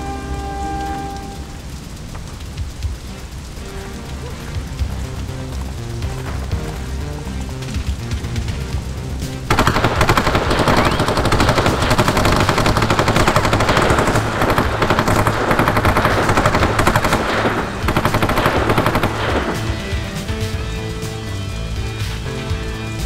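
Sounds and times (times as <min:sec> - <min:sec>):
background music: 0:00.0 - 0:23.0
automatic weapon fire: 0:09.5 - 0:20.2.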